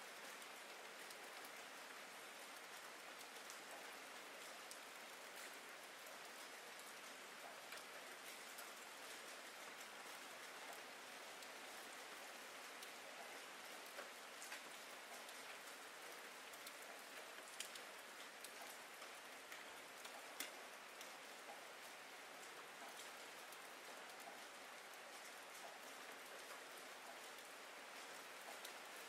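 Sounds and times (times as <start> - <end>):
rain hiss: 0.0 - 29.0
single raindrop ticks: 16.6 - 21.6.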